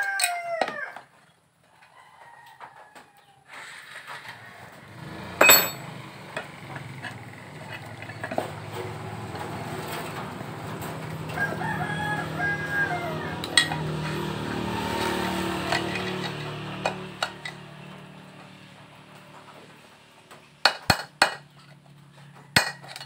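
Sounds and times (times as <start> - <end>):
rooster crowing: 0.0 - 1.1, 1.8 - 3.5, 10.9 - 18.6
metal tools clicking and tapping: 5.4 - 11.5, 13.4 - 14.2, 15.7 - 18.5, 22.5 - 23.0.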